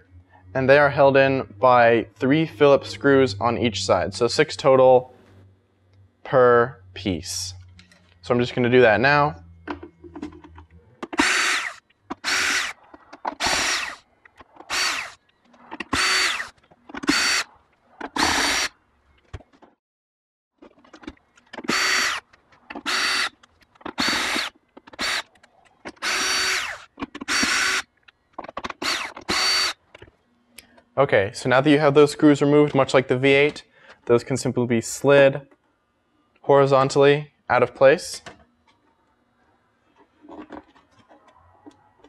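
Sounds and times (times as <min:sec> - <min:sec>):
cordless drill whirring: 0:11.2 - 0:12.8, 0:13.4 - 0:14.0, 0:14.6 - 0:15.2, 0:15.8 - 0:17.5, 0:18.1 - 0:18.7, 0:21.6 - 0:22.2, 0:22.8 - 0:23.3, 0:23.9 - 0:25.3, 0:25.9 - 0:27.9, 0:28.8 - 0:29.8.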